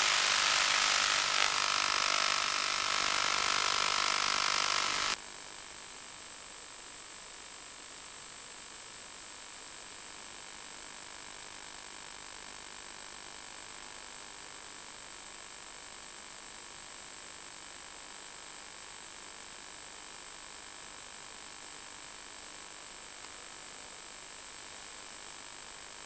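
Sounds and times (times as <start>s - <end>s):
static hiss: 0.0s - 5.2s
thin high whine: 0.0s - 5.2s.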